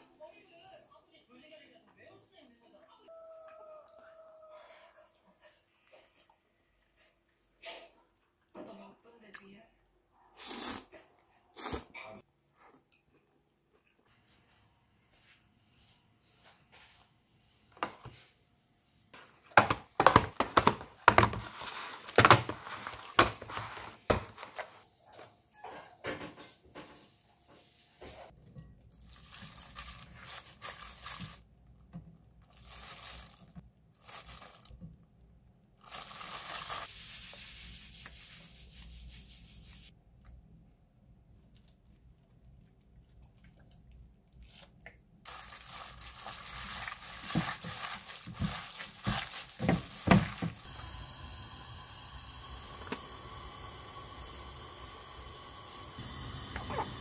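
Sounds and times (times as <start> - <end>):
plastic rustling: 19.2 - 24.9, 28.3 - 34.9, 35.8 - 39.9, 44.2 - 50.7.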